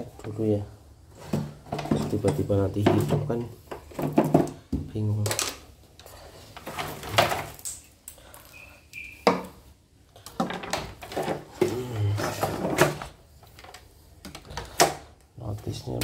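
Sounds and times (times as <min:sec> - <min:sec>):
plastic and metal parts rattling: 0:01.3 - 0:07.7, 0:10.2 - 0:16.0.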